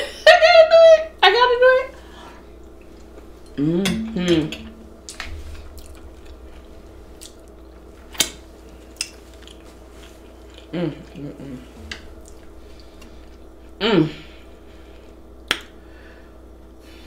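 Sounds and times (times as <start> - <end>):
woman humming: 3.6 - 4.8, 10.7 - 12.4, 13.8 - 14.3
chewing and finger-licking: 7.2 - 11.3.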